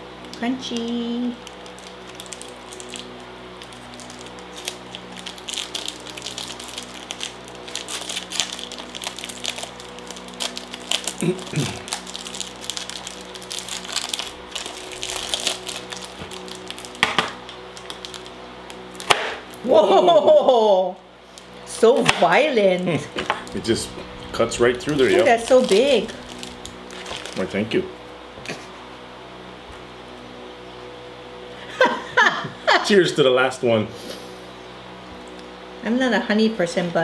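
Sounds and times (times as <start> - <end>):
plastic wrapper crinkling: 0.2 - 19.7, 21.3 - 28.0.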